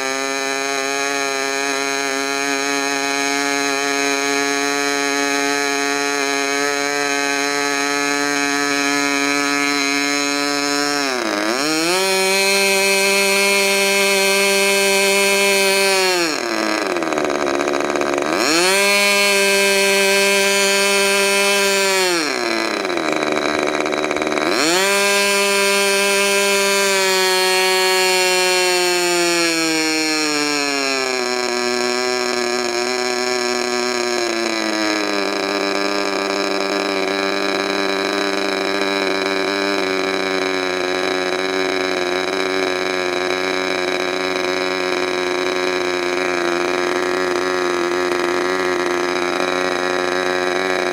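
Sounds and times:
model airplane engine running: 0:00.0 - 0:50.9.

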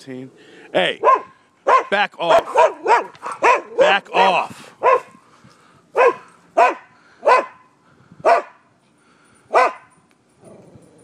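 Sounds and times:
dog barking aggressively: 0:01.0 - 0:05.2, 0:06.0 - 0:07.6, 0:08.2 - 0:08.6, 0:09.5 - 0:09.9.

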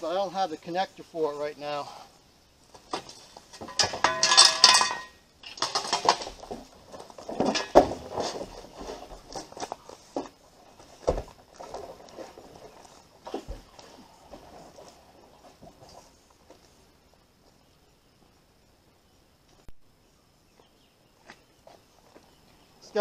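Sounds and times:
plastic barrel clinks and scrapes: 0:02.7 - 0:16.2.

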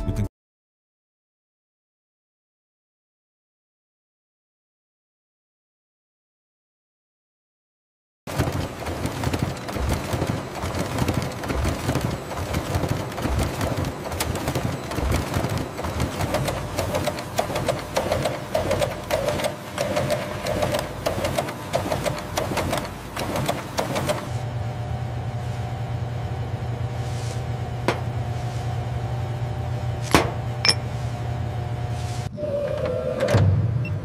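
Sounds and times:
printing press clattering: 0:08.3 - 0:24.4
low machine hum: 0:08.3 - 0:34.0.

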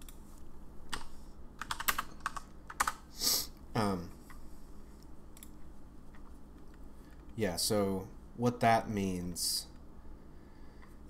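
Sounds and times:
typing on computer keyboard: 0:00.9 - 0:03.0
person breathing: 0:03.1 - 0:04.8, 0:10.0 - 0:11.0.

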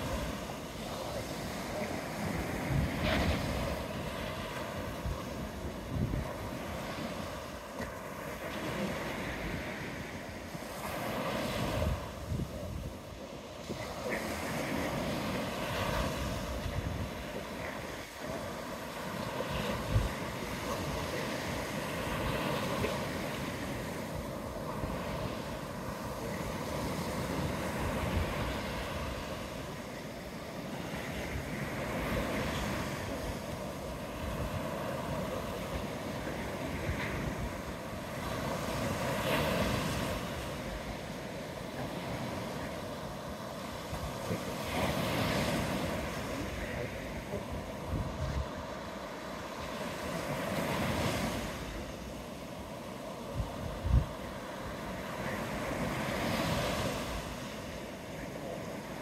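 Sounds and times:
sea waves breaking on beach: 0:00.0 - 0:59.0
wind rumbling on microphone: 0:00.0 - 0:59.0.

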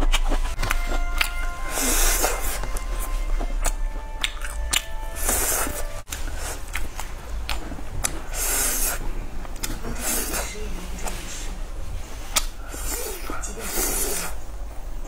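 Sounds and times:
biting and chewing meat: 0:00.0 - 0:10.5.

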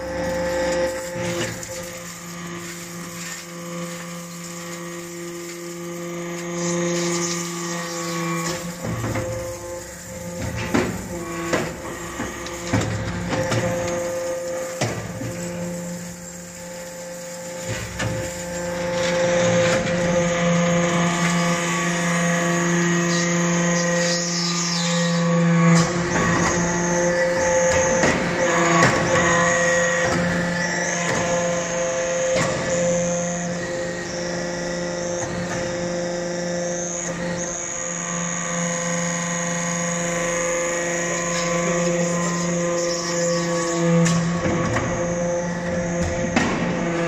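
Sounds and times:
hydraulic press humming: 0:00.0 - 0:47.0
metal chips pouring into hopper: 0:00.1 - 0:07.5.

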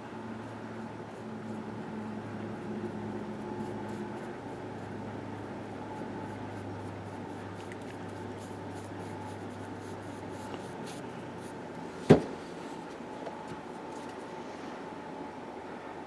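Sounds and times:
low room hum: 0:00.0 - 0:16.0
paintbrush scratching on wood: 0:02.6 - 0:11.6.

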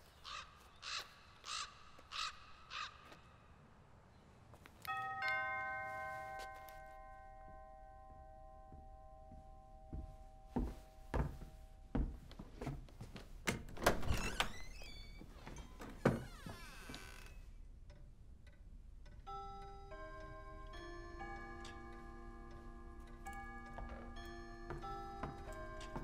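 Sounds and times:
two-note doorbell chime: 0:04.8 - 0:11.9, 0:19.3 - 0:26.0.

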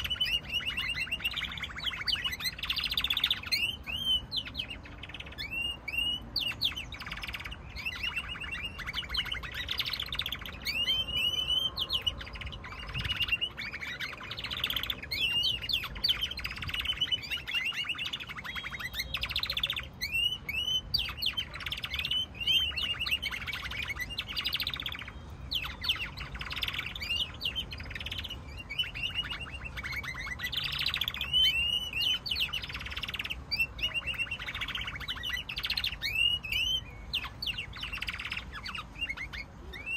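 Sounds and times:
canaries singing trills: 0:00.0 - 0:39.9.

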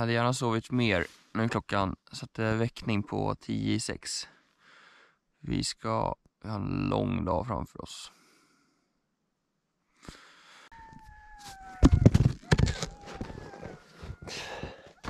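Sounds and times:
dogs howling: 0:10.7 - 0:15.0
thumps: 0:11.0 - 0:14.3.

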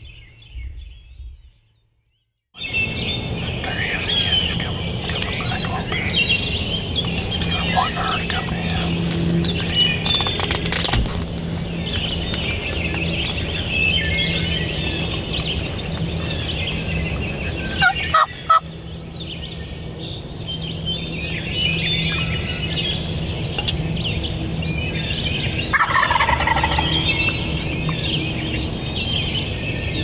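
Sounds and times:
songbird chirping: 0:00.0 - 0:30.0
turkey gobbling: 0:07.5 - 0:08.9, 0:17.8 - 0:18.6, 0:25.7 - 0:27.3.

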